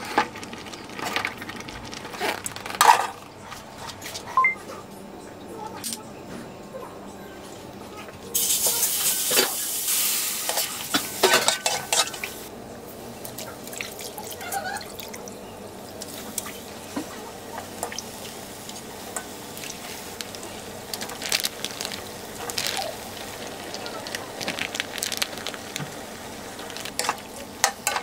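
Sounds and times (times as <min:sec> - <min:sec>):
paste sizzling in a wok: 0:08.4 - 0:12.5, 0:17.6 - 0:28.0.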